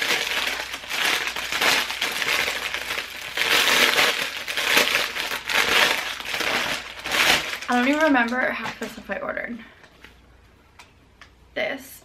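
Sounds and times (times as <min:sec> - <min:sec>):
plastic packaging crinkling: 0:00.0 - 0:09.2.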